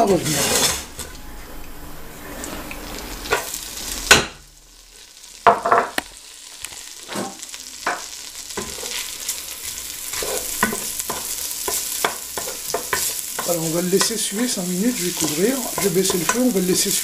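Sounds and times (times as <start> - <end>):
clatters and scrapes in a pot: 0.2 - 1.0, 8.6 - 13.5
butter sizzling in a saucepan: 2.4 - 17.0.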